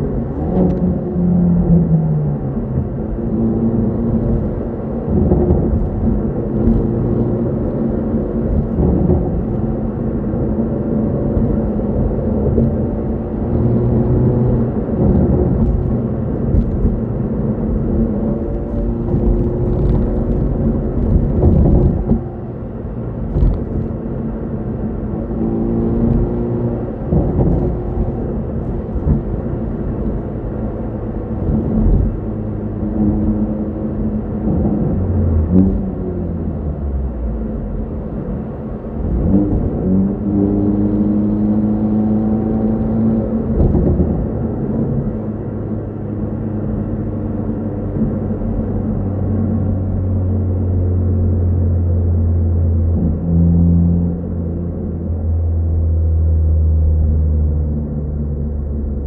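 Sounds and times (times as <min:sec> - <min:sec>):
car engine revving: 0:00.0 - 0:59.0
road rumble: 0:00.0 - 0:59.0.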